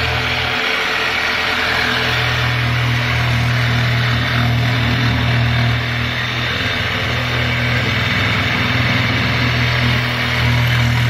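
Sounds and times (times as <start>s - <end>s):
electric jigsaw cutting plywood: 0.0s - 11.0s.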